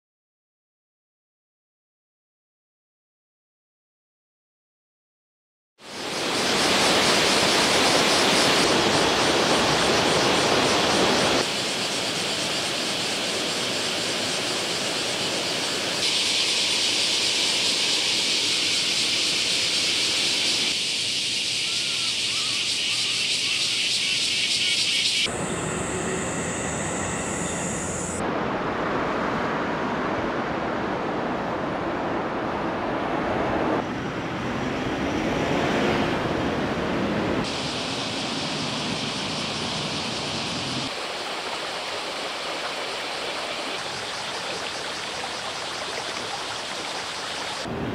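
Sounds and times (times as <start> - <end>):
outdoor ambience with high hiss: 5.8 - 34.4, 36.6 - 47.9
stream running over stones: 37.6 - 47.7.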